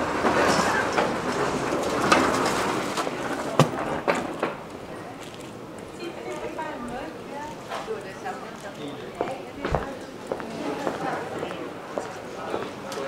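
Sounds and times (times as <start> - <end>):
train running noise: 0.0 - 6.0.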